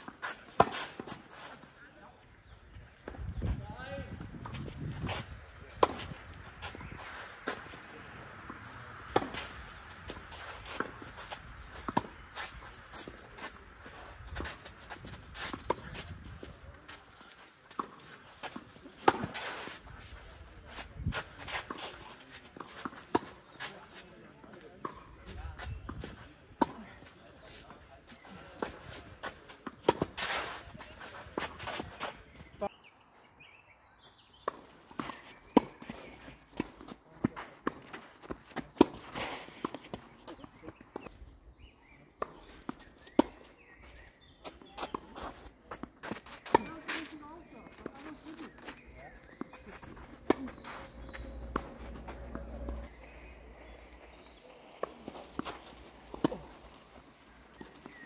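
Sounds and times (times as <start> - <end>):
racket hitting tennis ball: 0.0 - 1.6, 4.4 - 20.1, 25.6 - 27.0, 28.5 - 32.1, 34.5 - 41.1, 44.4 - 52.9, 54.8 - 56.8
footsteps scuffing on clay: 4.2 - 32.7, 42.2 - 52.9
ball bouncing on clay court: 14.3 - 19.4, 42.2 - 53.0.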